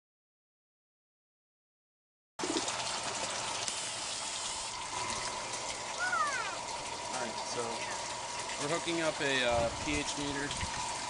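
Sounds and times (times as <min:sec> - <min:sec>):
water running and splashing: 0:02.4 - 0:11.0.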